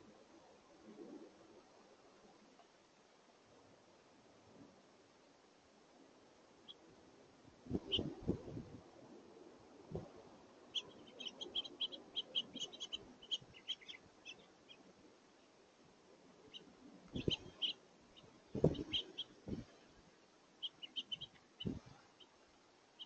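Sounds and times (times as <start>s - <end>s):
finches chirping: 7.7s - 8.3s, 10.6s - 15.5s, 16.4s - 19.8s, 20.6s - 23.0s
low thumps: 18.5s - 19.7s.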